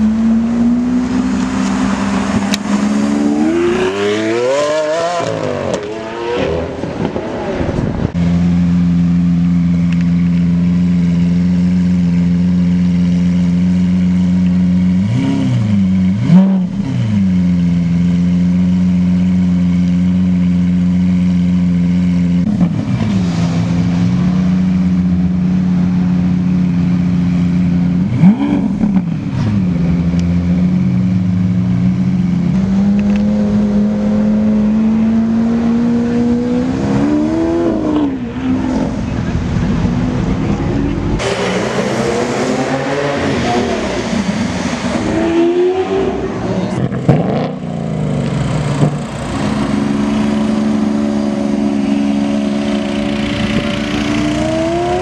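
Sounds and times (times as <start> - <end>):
sports car engine idling: 7.8 - 15.1.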